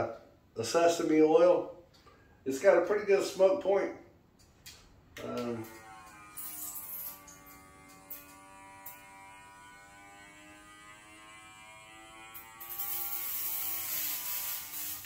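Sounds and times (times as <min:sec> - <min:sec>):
steady electric buzz: 0:05.2 - 0:15.0
loud hiss: 0:12.7 - 0:15.0.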